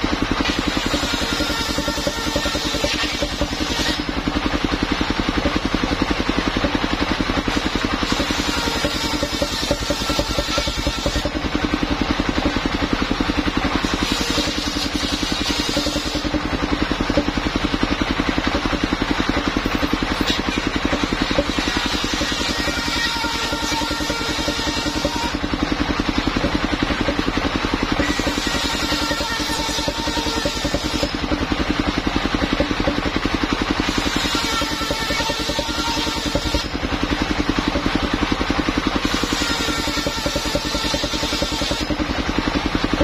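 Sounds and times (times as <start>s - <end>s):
circular saw blade spinning: 0.0s - 43.0s
sawmill engine pulsing: 0.0s - 43.0s
saw hissing through boards: 0.4s - 4.2s, 7.4s - 11.4s, 13.8s - 16.4s, 28.0s - 31.2s, 33.8s - 36.8s, 39.0s - 42.0s.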